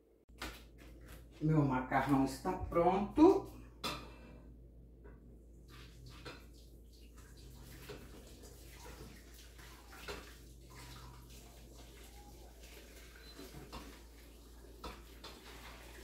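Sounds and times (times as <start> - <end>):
water pouring into colander: 5.7 - 16.0.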